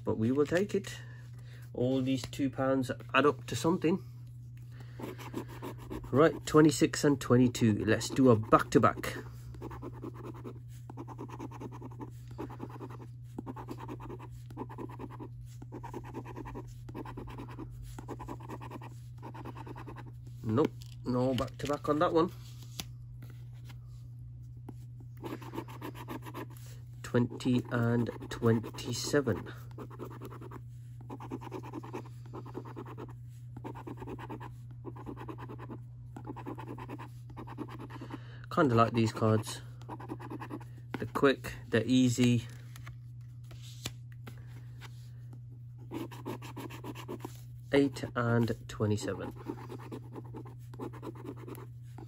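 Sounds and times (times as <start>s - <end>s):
coin scratching a scratchcard: 9.6s - 20.1s, 27.4s - 38.0s, 45.9s - 47.3s, 49.1s - 51.7s.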